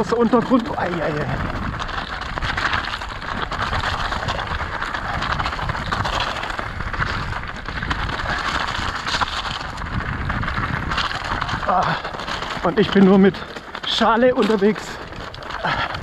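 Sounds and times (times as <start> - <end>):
bike tyres crunching on gravel: 0.0 - 16.0.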